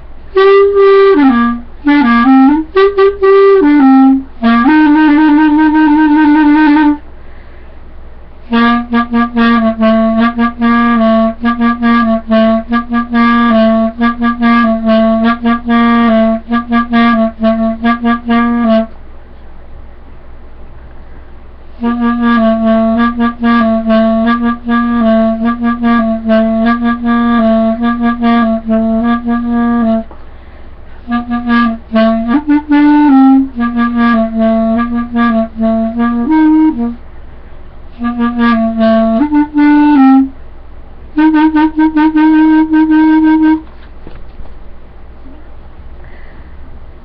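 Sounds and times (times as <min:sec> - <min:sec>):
clarinet playing rapid notes: 0:00.3 - 0:07.0, 0:08.5 - 0:19.0, 0:21.7 - 0:30.2, 0:31.0 - 0:37.0, 0:37.9 - 0:40.4, 0:41.2 - 0:43.8.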